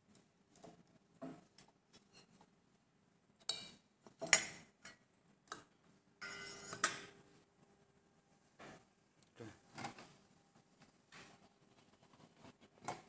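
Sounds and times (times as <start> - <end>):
metal scrape: 6.2 - 7.2.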